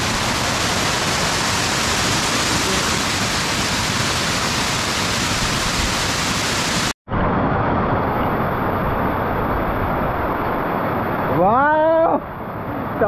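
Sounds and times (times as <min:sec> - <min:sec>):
waterfall pouring over rock: 0:00.0 - 0:07.0.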